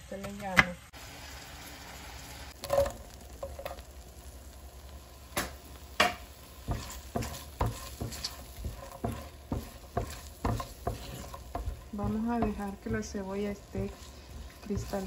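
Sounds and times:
onion sizzling in a pan: 0.0 - 15.0
spatula scraping and knocking pan: 6.0 - 15.0.

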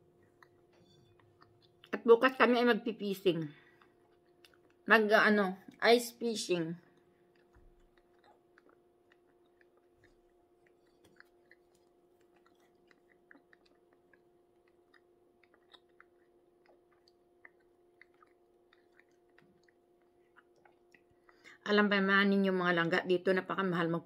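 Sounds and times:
faint chewing: 0.0 - 2.3, 3.2 - 5.0, 6.8 - 21.6
low steady hum: 0.0 - 24.0.

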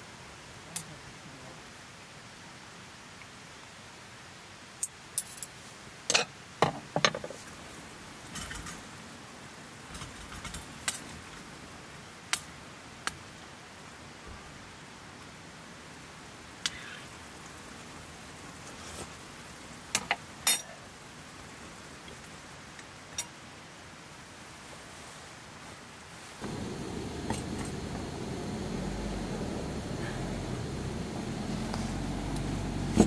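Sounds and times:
steady hiss: 0.0 - 33.0
cookware and utensils clinking: 6.1 - 7.4.

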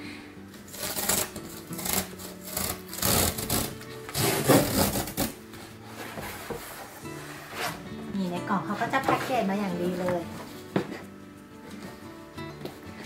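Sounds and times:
packing tape ripping off cardboard: 0.5 - 6.5
cardboard rubbing: 0.7 - 7.9, 8.7 - 11.1.

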